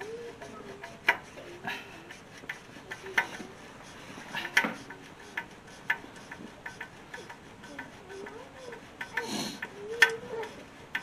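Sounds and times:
screwdriver clicking on metal: 4.4s - 11.0s.

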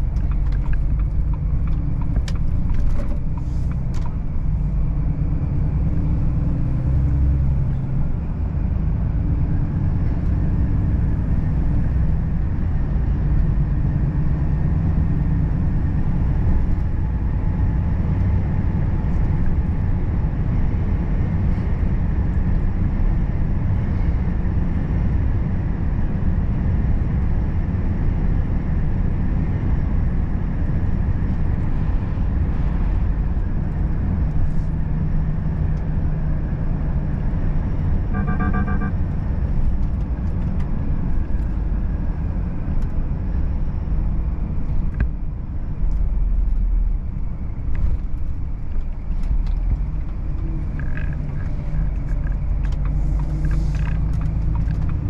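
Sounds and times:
road noise: 0.0s - 55.0s
truck diesel engine rumble: 0.0s - 55.0s
rapid beeps: 38.2s - 39.0s.

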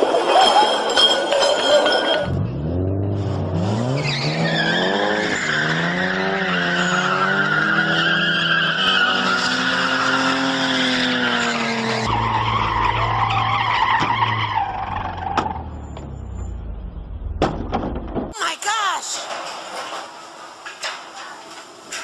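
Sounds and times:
tires squealing: 0.0s - 17.3s
car engines revving: 2.2s - 18.3s.

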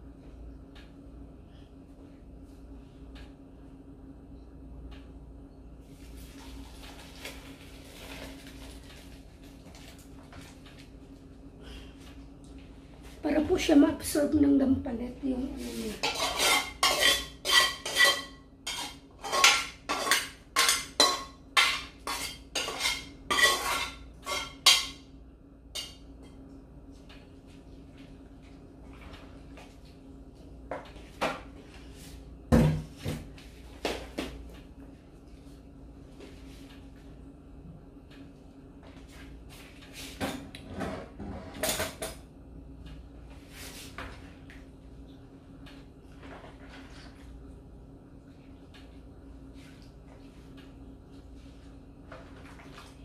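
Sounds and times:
steady low hum: 0.0s - 53.0s
ladle scraping metal pan: 16.0s - 24.8s.

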